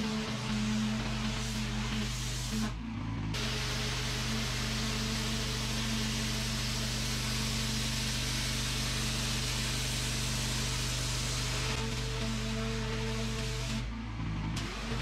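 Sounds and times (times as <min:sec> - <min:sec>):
pressure washer jet hissing: 0:00.0 - 0:02.7, 0:03.4 - 0:12.2
pressure washer machine hum: 0:00.0 - 0:15.0.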